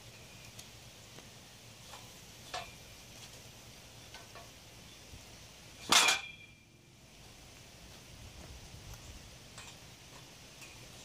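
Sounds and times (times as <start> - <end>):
steel tubing clank with ring: 5.8 - 6.7.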